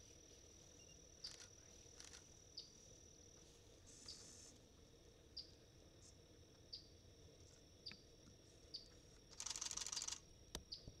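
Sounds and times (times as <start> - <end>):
high-pitched insect drone: 0.6 - 4.6, 8.7 - 10.9.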